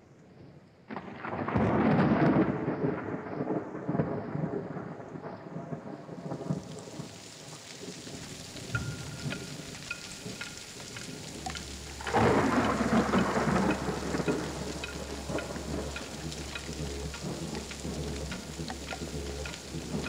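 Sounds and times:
thunder roll: 0:00.9 - 0:20.0
rain falling: 0:01.0 - 0:20.0
steady low hum: 0:10.2 - 0:20.0.

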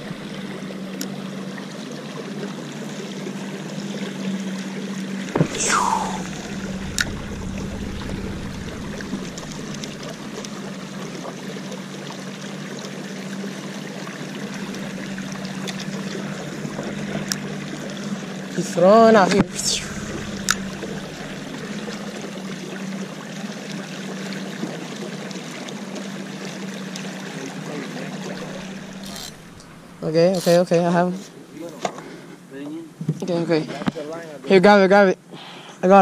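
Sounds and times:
steady low hum: 0:00.0 - 0:00.8, 0:05.4 - 0:12.2, 0:14.0 - 0:23.0, 0:28.1 - 0:31.0
low thump: 0:05.4 - 0:11.0
falling whistle-like sweep: 0:05.4 - 0:11.1, 0:19.4 - 0:22.5
water lapping against canoe hull: 0:06.2 - 0:18.6, 0:28.1 - 0:31.0.

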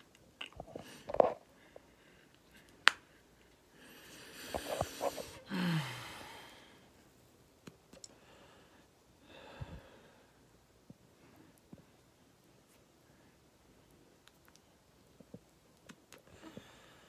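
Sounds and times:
person inhaling smoke: 0:03.8 - 0:06.9
person exhaling in a sigh: 0:05.0 - 0:06.8.

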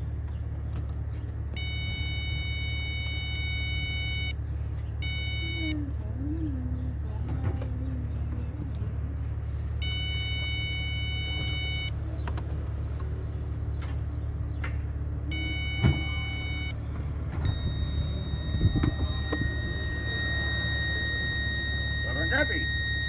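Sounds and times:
steady low hum: 0:00.0 - 0:23.0
electronic tones: 0:09.8 - 0:11.9, 0:15.3 - 0:16.8, 0:17.4 - 0:23.0.

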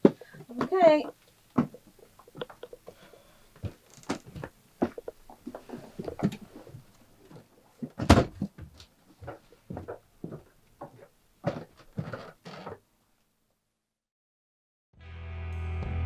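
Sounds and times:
footsteps: 0:00.0 - 0:12.7.

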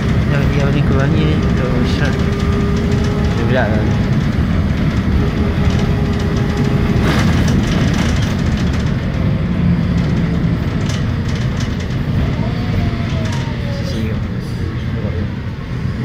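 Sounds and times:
light rattles and clicks: 0:00.0 - 0:12.4
vehicle rumble from inside cabin: 0:00.0 - 0:16.0.

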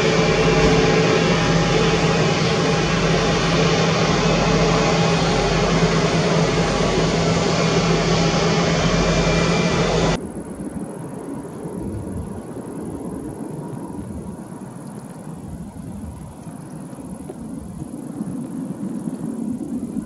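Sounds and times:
jet engines running at low power: 0:00.0 - 0:20.0.

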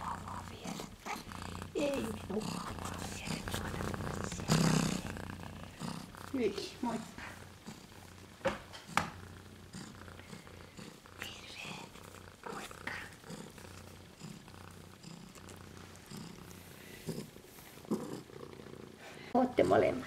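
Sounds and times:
cat purring: 0:00.0 - 0:20.0
soft knocks: 0:08.4 - 0:09.2.

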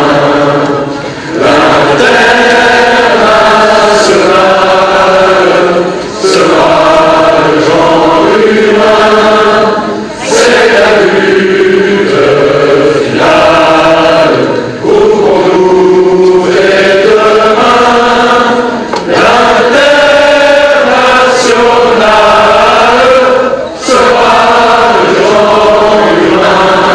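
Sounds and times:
crowd singing in unison: 0:00.0 - 0:26.9.

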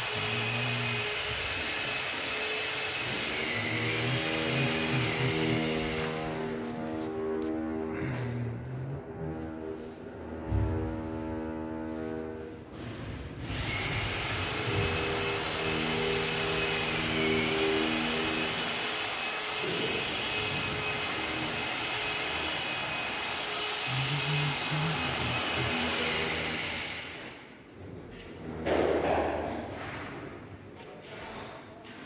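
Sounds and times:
machine hissing with high whine: 0:00.0 - 0:06.5, 0:13.4 - 0:27.2.

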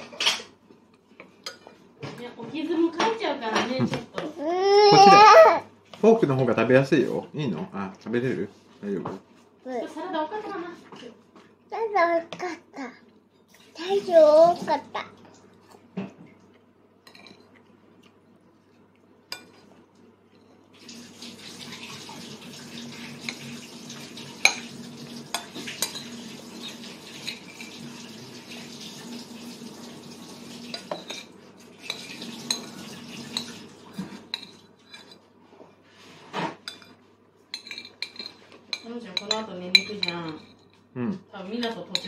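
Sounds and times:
steady hiss with low hum: 0:00.0 - 0:42.0
spoon and fork clinking on bowls: 0:17.0 - 0:17.6, 0:25.3 - 0:27.8, 0:30.7 - 0:33.6, 0:34.3 - 0:35.3, 0:36.6 - 0:40.9, 0:41.5 - 0:42.0.

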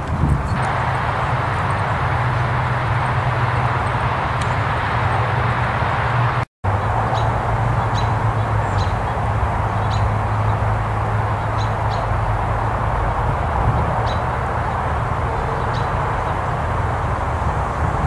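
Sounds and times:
outdoor ambient hum: 0:00.0 - 0:18.0
bird chirping: 0:07.1 - 0:10.6, 0:11.4 - 0:12.2.

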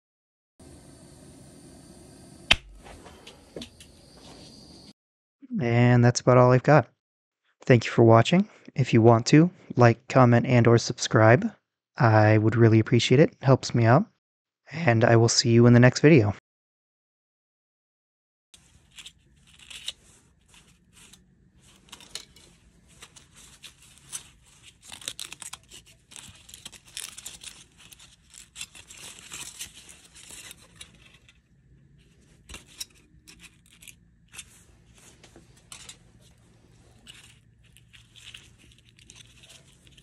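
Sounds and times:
aluminium foil crinkling: 0:18.6 - 0:40.0.

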